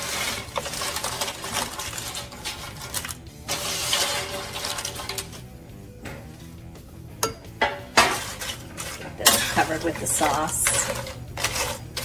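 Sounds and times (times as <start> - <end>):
chips rustling and crackling: 0.0 - 5.4, 8.2 - 12.0.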